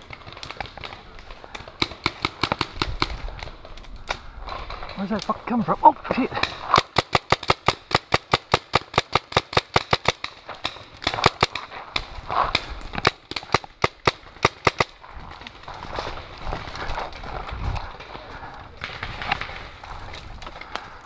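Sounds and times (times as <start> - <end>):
leaves and brush rustling: 14.2 - 21.0.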